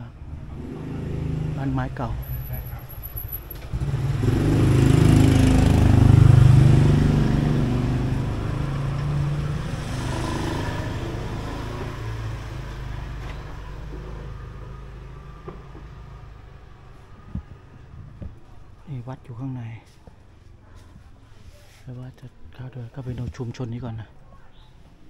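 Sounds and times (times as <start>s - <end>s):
vehicle passing by: 0.0s - 18.8s.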